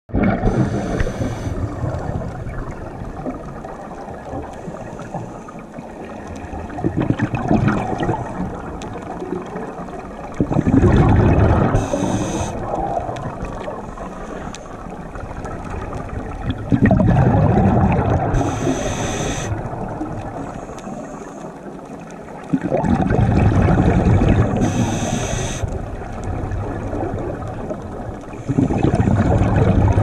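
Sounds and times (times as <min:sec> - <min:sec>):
bubbling exhaled air underwater: 0:00.1 - 0:21.2, 0:22.2 - 0:30.0
regulator inhalation hiss: 0:00.5 - 0:01.6, 0:11.8 - 0:12.6, 0:18.3 - 0:19.6, 0:24.6 - 0:25.8.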